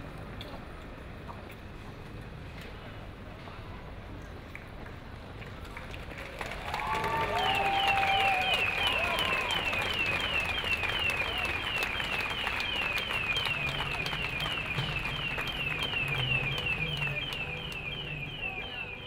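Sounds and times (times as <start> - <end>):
street and crowd noise: 0.0 - 19.0
electronic alarm chirping: 8.5 - 19.0.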